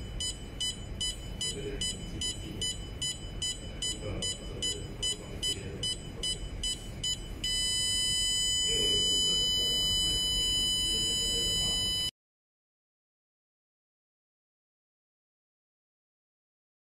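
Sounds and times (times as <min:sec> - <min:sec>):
buzzer beeping: 0:00.0 - 0:12.1.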